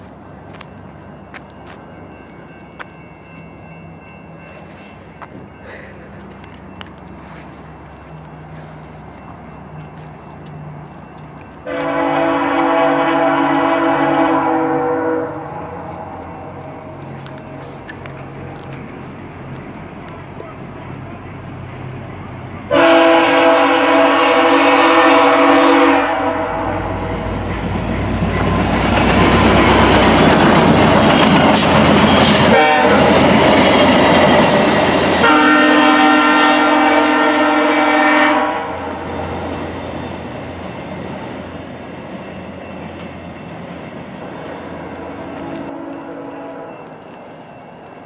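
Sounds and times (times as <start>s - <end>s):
train air horn blasts: 11.6s - 16.5s, 22.7s - 27.3s, 32.2s - 33.3s, 35.2s - 39.1s, 44.9s - 46.9s
train wheels clattering on rails: 14.0s - 22.6s, 26.9s - 36.4s.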